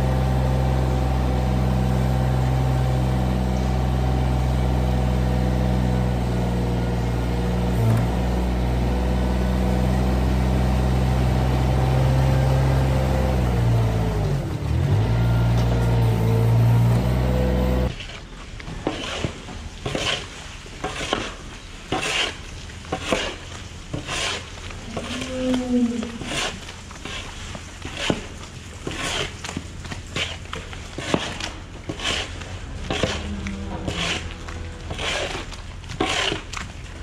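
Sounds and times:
small engine running: 0.0 - 17.9
shovel scraping sand: 16.0 - 25.4, 26.1 - 36.6.

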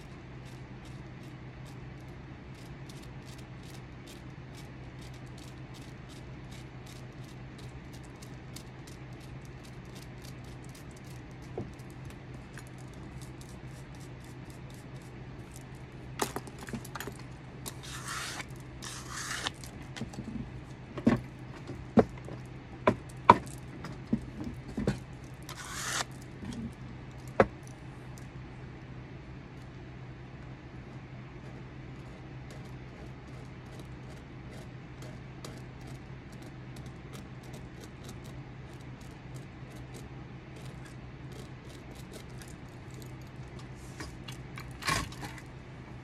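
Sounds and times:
faint ticks and scratches: 0.0 - 15.8, 30.9 - 44.4
wooden stick scraping: 17.7 - 20.4, 24.7 - 26.8.

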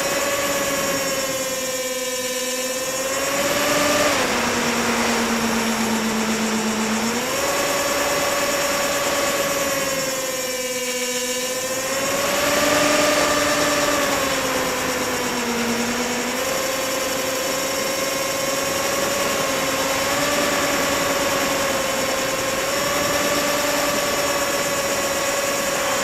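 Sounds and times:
model plane motor whining: 0.0 - 26.0.

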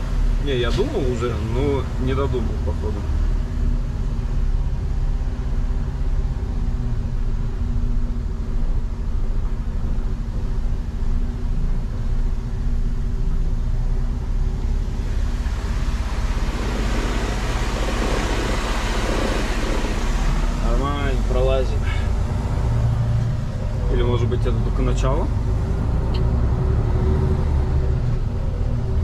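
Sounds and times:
diesel truck engine running: 0.0 - 29.0
hiss: 15.8 - 20.4.

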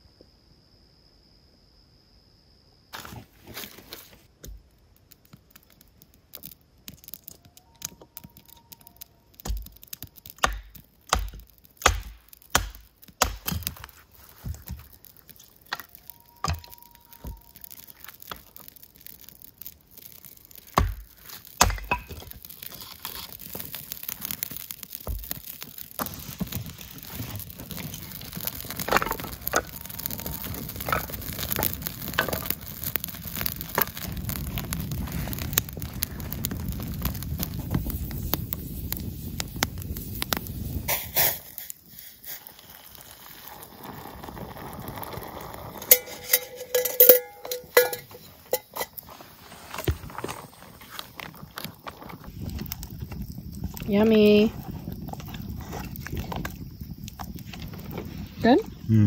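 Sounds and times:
crickets chirping: 0.0 - 59.0
fire crackling: 3.0 - 59.0
twigs snapping: 4.4 - 32.8.

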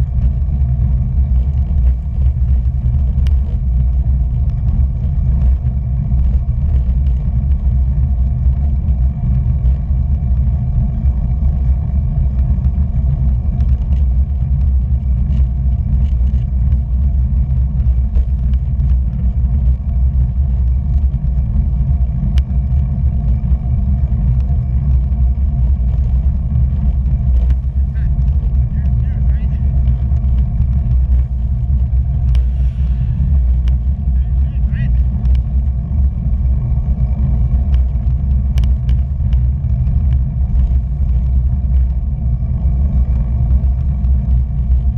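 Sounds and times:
tyre noise on asphalt: 0.0 - 44.9
wind buffeting microphone: 0.0 - 44.9
faint ticks: 29.8 - 33.9, 35.2 - 35.5, 37.4 - 42.0.

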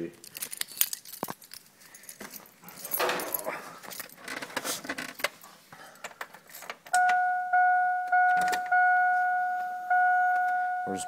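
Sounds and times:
dashboard warning chime dinging: 7.0 - 11.0.

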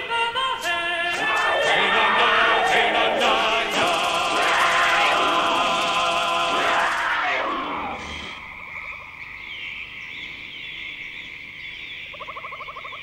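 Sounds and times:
choral music: 0.0 - 8.7
steady high chirring: 0.6 - 10.1
frogs croaking in trills: 6.7 - 13.0.

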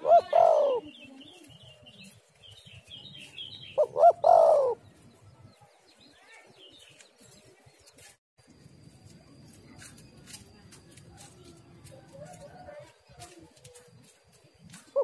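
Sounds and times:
dove cooing: 0.0 - 1.1, 3.8 - 4.9
small birds chirping: 0.0 - 8.2.

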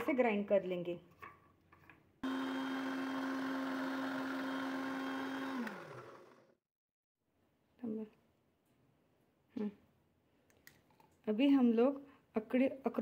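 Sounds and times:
electric blender running: 2.2 - 6.6.

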